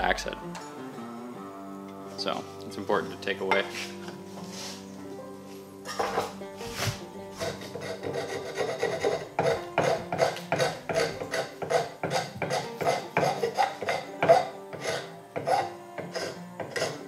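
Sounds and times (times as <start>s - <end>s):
draw knife shaving wood: 6.7s - 17.0s.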